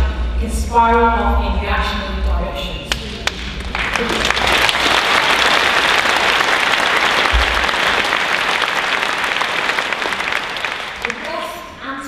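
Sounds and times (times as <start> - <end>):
speech: 0.0 - 3.4, 11.1 - 12.0
audience applauding: 3.2 - 11.6.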